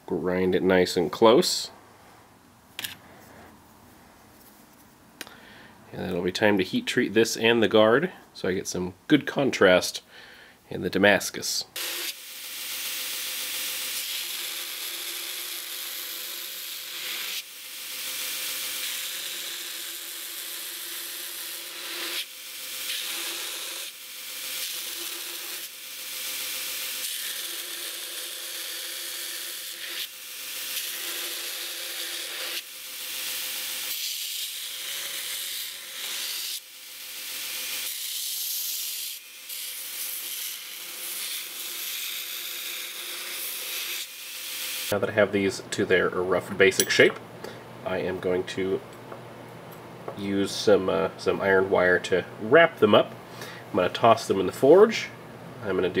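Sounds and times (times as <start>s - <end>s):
belt grinder humming: 11.8s - 44.9s.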